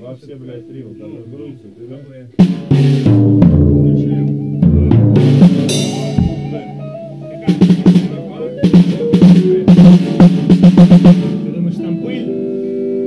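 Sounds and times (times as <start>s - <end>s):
live band music: 2.4s - 13.0s
snare and bass drum hits: 4.9s - 6.8s, 7.5s - 11.4s
cymbal crash: 5.2s - 11.4s.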